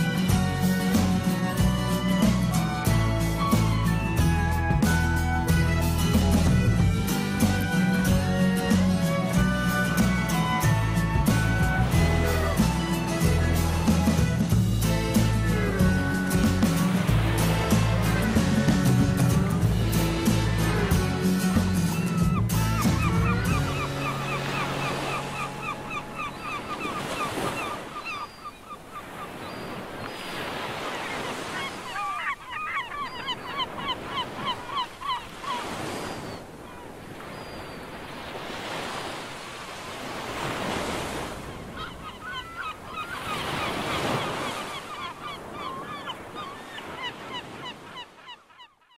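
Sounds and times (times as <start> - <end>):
birds calling rapidly: 14.8 - 38.0, 40.4 - 48.9
ocean surf breaking on beach: 22.9 - 48.2.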